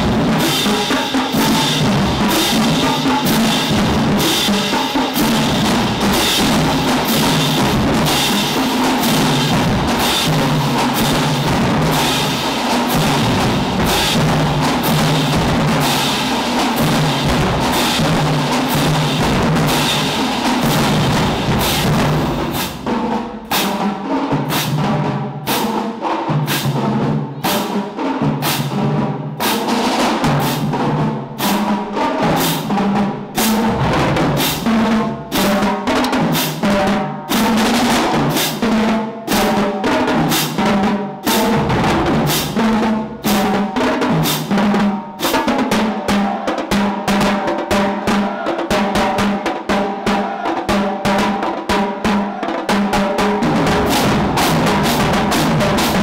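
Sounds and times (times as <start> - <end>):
bass drums: 0.0 - 23.8, 32.3 - 36.8, 40.6 - 43.6, 53.0 - 56.0
cymbals: 0.0 - 56.0
snare drums: 0.0 - 56.0
tenor drums: 0.0 - 56.0.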